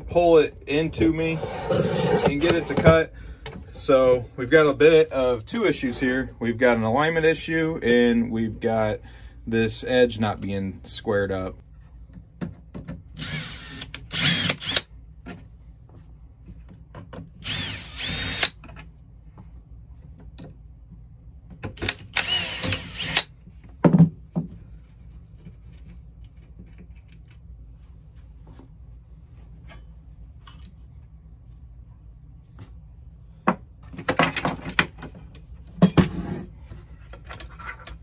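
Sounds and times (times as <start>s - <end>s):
cordless drill whining: 13.2s - 14.8s, 17.4s - 18.5s, 22.1s - 23.3s.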